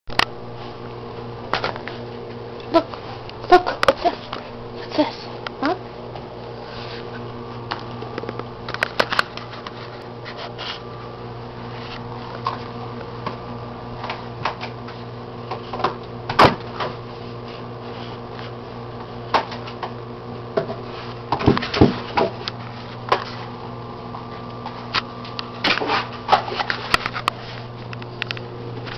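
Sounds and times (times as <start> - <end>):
steady low hum: 0.1 - 28.9.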